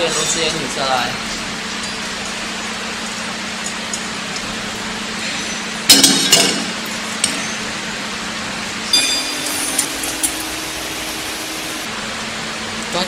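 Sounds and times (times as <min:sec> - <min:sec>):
steady hum: 0:07.8 - 0:12.7
ringing metallic clink: 0:08.9 - 0:10.4.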